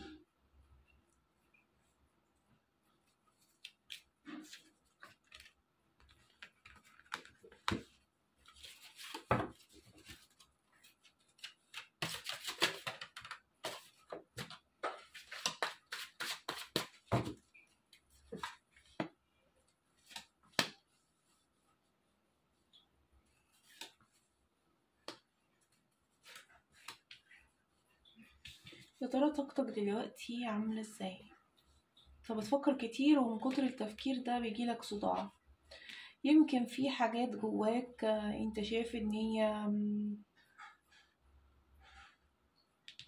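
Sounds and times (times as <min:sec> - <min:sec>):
cards shuffling: 0:03.5 - 0:07.9, 0:08.5 - 0:17.4.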